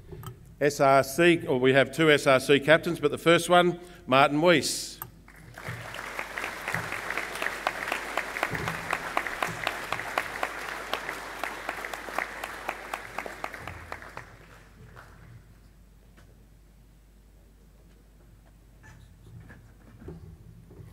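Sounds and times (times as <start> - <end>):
audience applauding: 5.3 - 15.3.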